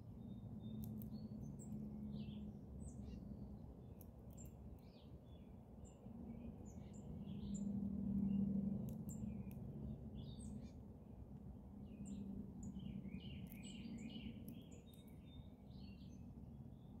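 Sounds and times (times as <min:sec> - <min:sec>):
faint low hum: 0:00.0 - 0:17.0
birds chirping: 0:11.8 - 0:17.0.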